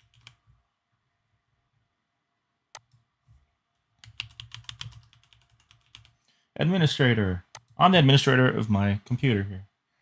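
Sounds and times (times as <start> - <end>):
typing on computer keyboard: 0.0 - 0.4, 4.0 - 6.2.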